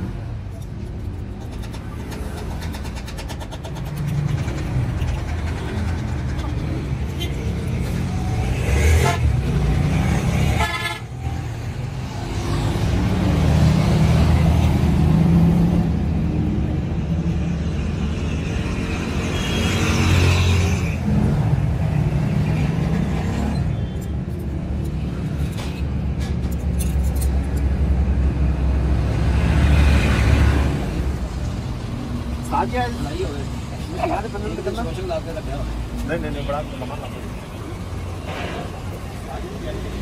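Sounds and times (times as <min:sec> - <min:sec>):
vehicle engines running: 0:00.0 - 0:40.0
horn tooting: 0:08.8 - 0:09.5, 0:10.4 - 0:11.1.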